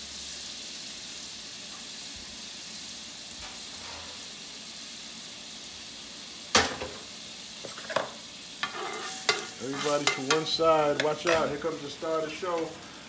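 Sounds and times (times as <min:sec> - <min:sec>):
food sizzling in a skillet: 0:00.0 - 0:13.0.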